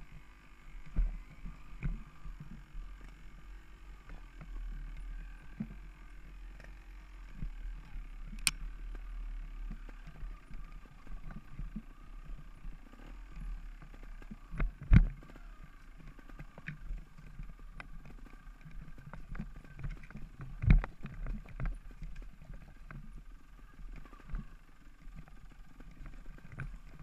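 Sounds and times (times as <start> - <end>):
bike tyres on dirt trail: 0.0 - 27.0
sharp click: 8.3 - 8.6.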